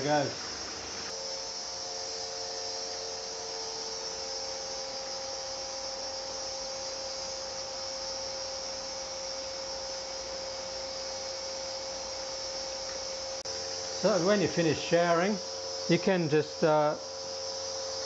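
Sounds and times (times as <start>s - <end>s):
shower spraying water: 0.0s - 1.2s
water pump humming: 0.0s - 18.0s.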